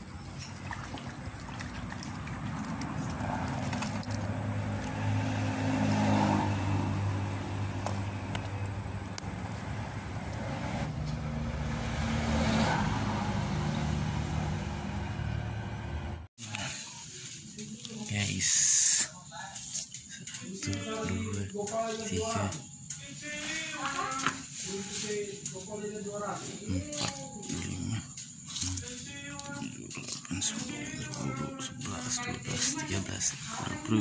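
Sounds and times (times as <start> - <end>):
low engine hum: 0.0 - 16.3
vehicles passing by: 0.0 - 17.3, 24.3 - 34.0.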